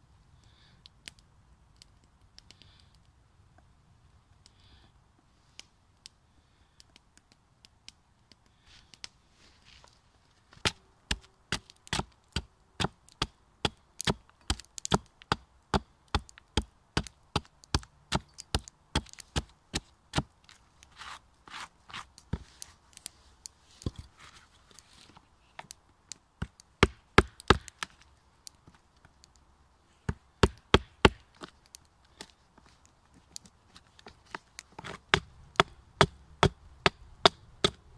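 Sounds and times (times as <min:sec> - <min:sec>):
blade chopping into log: 0:26.8 - 0:27.8.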